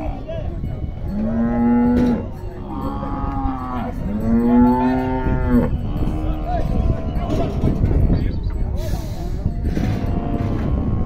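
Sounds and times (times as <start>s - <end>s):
cattle mooing: 1.0s - 7.4s, 9.8s - 11.0s.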